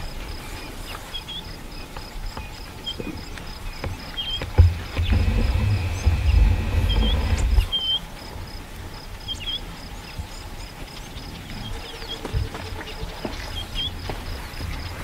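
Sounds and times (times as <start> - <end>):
small birds chirping: 0.3 - 15.0
elephant low rumble: 3.8 - 7.9.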